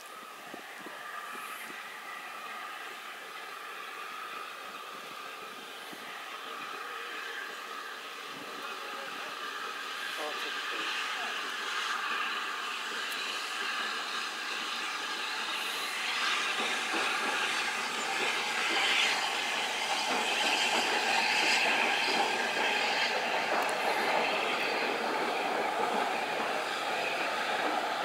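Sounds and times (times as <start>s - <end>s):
train rumbling and rattling on rails: 0.0s - 28.0s.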